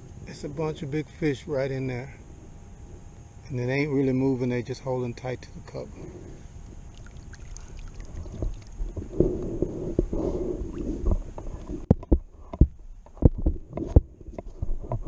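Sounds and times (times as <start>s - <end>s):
low handling rumble: 0.0s - 15.0s
sharp knocks and clicks: 11.0s - 15.0s.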